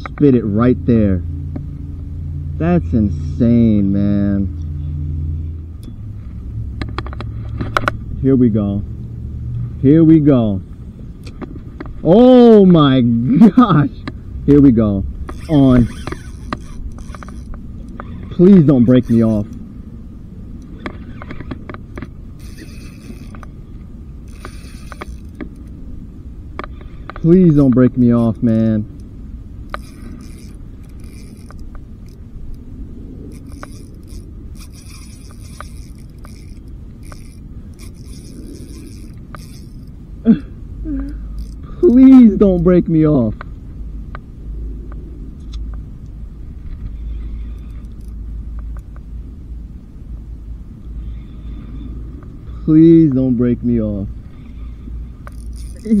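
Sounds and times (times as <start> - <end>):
handling and wind noise: 2.8 - 56.0
fishing reel clicks: 15.2 - 19.6, 20.6 - 23.6, 24.2 - 25.8, 26.6 - 32.6, 33.3 - 40.0, 41.3 - 42.7, 46.9 - 48.9, 54.4 - 56.0
fishing reel whirring: 15.2 - 19.9, 20.5 - 25.8, 26.6 - 29.0, 29.6 - 40.1, 40.9 - 42.7, 46.5 - 48.9, 54.2 - 56.0.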